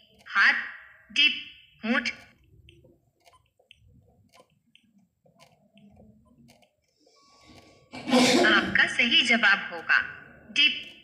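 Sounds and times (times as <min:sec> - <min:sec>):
faint clicks and high ticks: 0:02.2 - 0:07.7.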